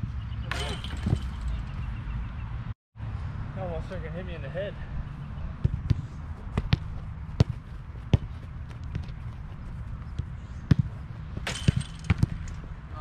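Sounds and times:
soccer ball impacts: 5.6s - 12.6s.

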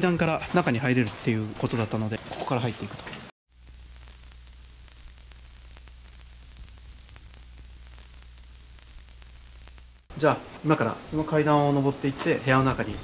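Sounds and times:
faint crackles: 1.8s - 10.1s
low electrical hum: 3.5s - 11.3s
static hiss: 3.5s - 13.0s.

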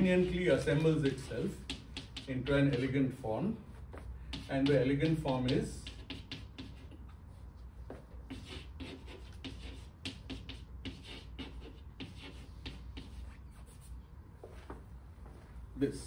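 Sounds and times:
handwriting scratches and taps: 0.0s - 3.0s, 3.9s - 7.2s, 7.8s - 13.9s.

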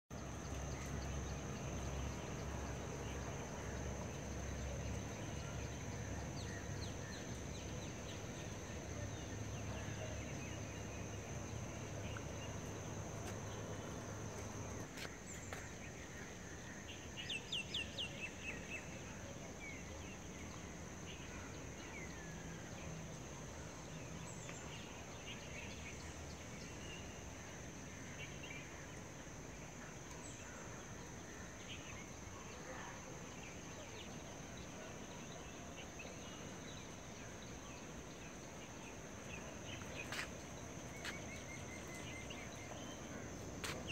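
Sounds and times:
birds calling and chirping: 33.3s - 43.9s.

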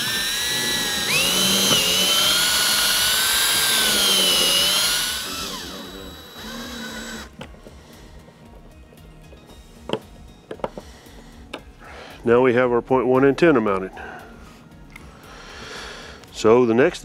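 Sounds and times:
cordless drill motor whine: 0.0s - 8.2s.

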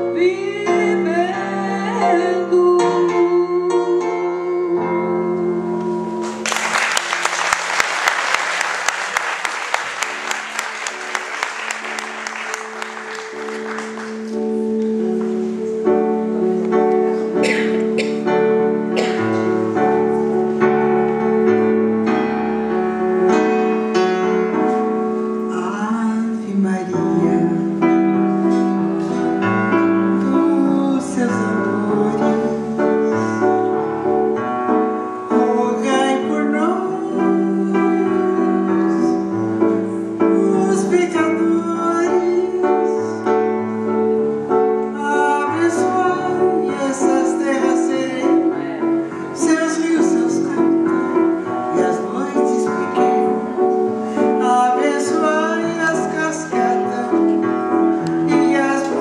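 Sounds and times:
woman singing: 0.0s - 6.4s, 25.5s - 27.9s, 30.0s - 33.4s, 35.3s - 39.3s, 40.2s - 43.3s, 44.9s - 50.6s
keyboard chords: 8.8s - 59.0s.

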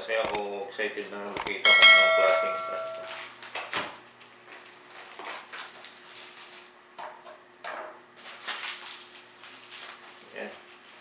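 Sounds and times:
paper crinkling and tearing: 8.2s - 11.0s.

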